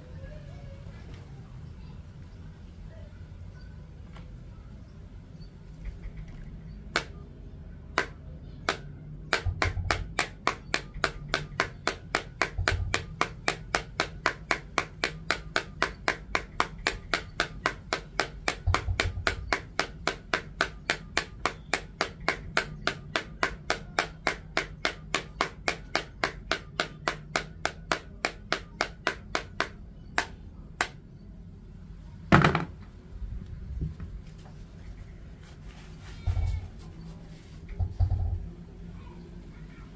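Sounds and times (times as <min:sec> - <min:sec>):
loud knock: 0:32.3 - 0:32.8
dull thumps: 0:36.1 - 0:37.0.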